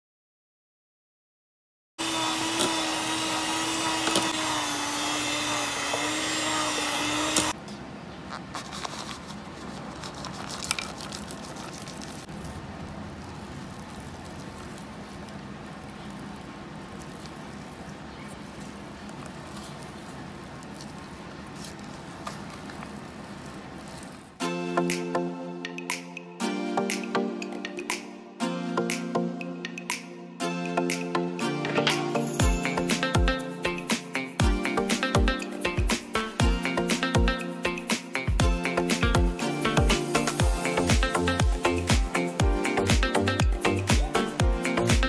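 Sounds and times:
stand mixer motor whining: 0:02.0 - 0:07.6.

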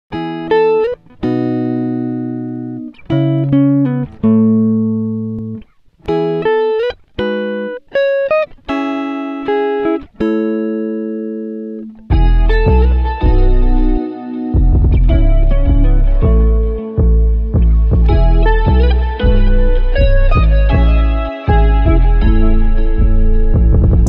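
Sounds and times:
plucked guitar music: 0:00.1 - 0:24.0.

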